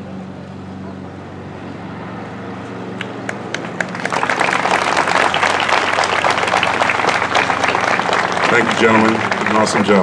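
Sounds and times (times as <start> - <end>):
crowd applauding: 3.0 - 10.0.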